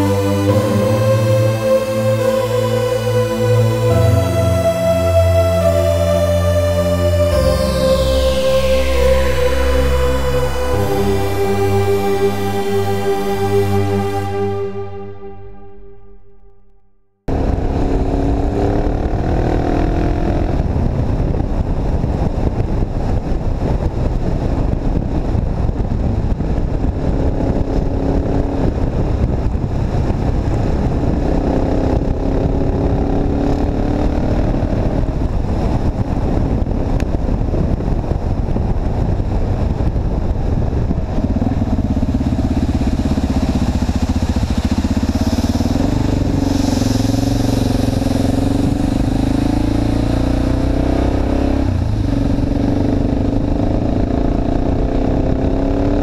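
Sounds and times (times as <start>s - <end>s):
motorcycle engine revving: 17.3s - 56.0s
wind on microphone: 17.3s - 56.0s.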